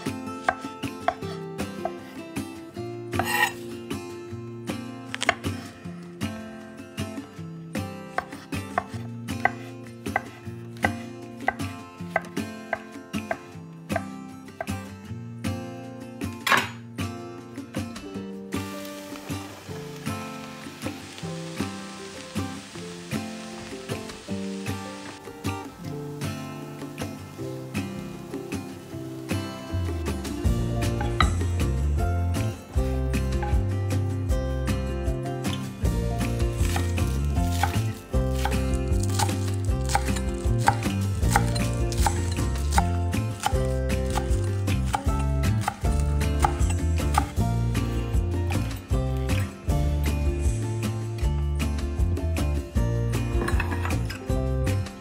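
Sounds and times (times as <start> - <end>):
background music: 0.0 - 55.0
knife chopping food: 37.5 - 47.3.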